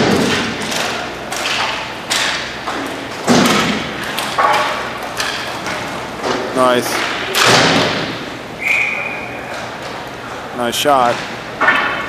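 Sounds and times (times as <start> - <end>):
hockey sticks and puck knocking: 0.0 - 8.2, 10.9 - 12.0.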